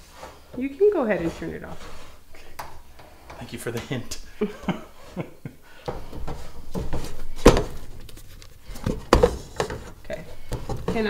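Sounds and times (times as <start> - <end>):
wooden spoon stirring dough in pot: 0.0 - 11.0.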